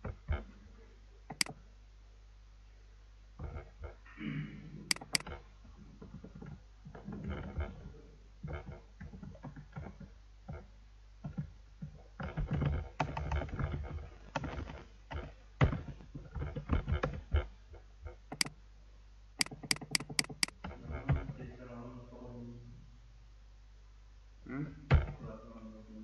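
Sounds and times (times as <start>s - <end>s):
computer keyboard typing: 4.9s - 5.2s, 18.3s - 18.5s, 19.4s - 20.5s
mouse clicks: 4.9s - 5.3s, 18.3s - 18.5s, 19.4s - 20.5s.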